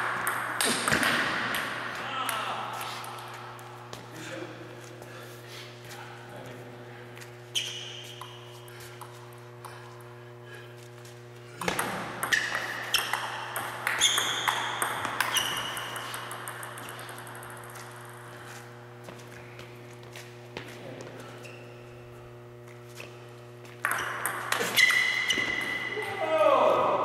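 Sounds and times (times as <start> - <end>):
steady low hum: 0.0 - 27.0
ping-pong ball clicks: 11.6 - 18.2, 23.8 - 25.1.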